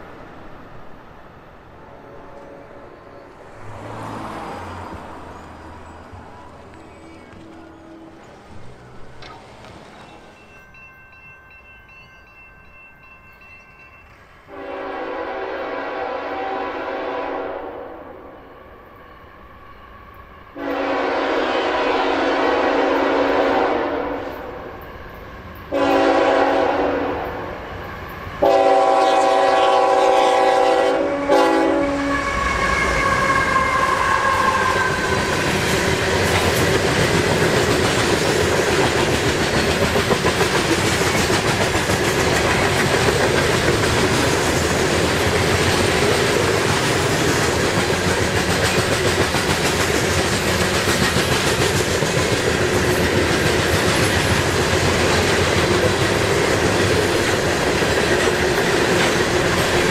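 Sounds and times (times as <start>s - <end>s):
locomotive horn blasts: 1.9s - 3.0s, 14.5s - 18.4s, 20.6s - 24.5s, 25.7s - 27.4s, 28.4s - 35.4s
train wheels clattering on rails: 4.7s - 14.6s, 33.3s - 59.9s.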